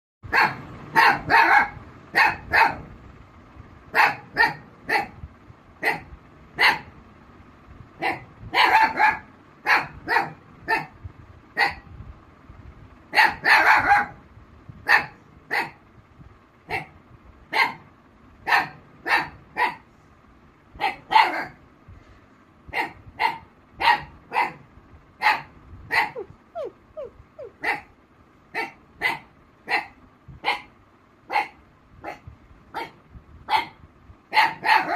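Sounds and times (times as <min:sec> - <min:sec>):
dog barking: 0:00.3 - 0:02.9, 0:03.9 - 0:05.2, 0:05.8 - 0:06.9, 0:08.0 - 0:11.0, 0:11.6 - 0:11.8, 0:13.1 - 0:14.2, 0:14.8 - 0:15.8, 0:16.7 - 0:19.9, 0:20.8 - 0:21.6, 0:22.7 - 0:24.6, 0:25.2 - 0:26.7, 0:27.4 - 0:27.9, 0:28.5 - 0:30.7, 0:31.3 - 0:34.9.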